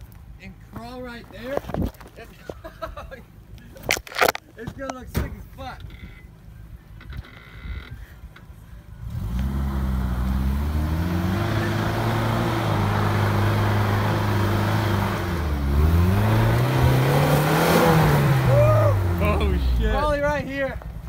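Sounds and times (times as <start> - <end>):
engine working under load: 8.2 - 20.2.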